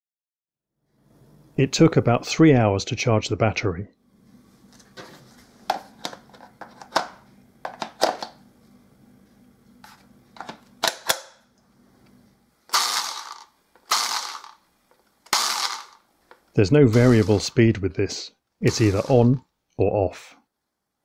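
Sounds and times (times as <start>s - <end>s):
plastic battery pack clicking: 10.4s - 11.4s
electric motor whirring: 12.7s - 14.6s, 15.3s - 16.0s, 16.9s - 17.6s, 18.7s - 19.3s.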